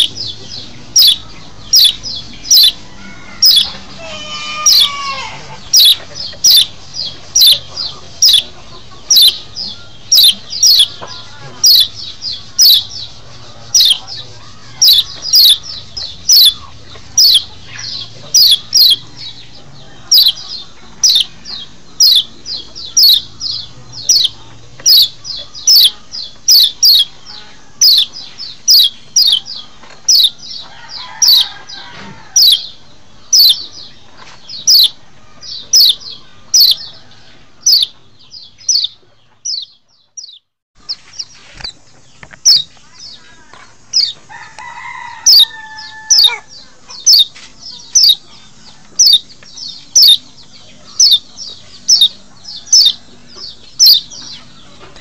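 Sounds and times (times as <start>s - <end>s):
bird calling high-pitched notes: 0.0s - 19.2s, 22.0s - 29.5s, 32.4s - 33.7s, 49.0s - 50.3s.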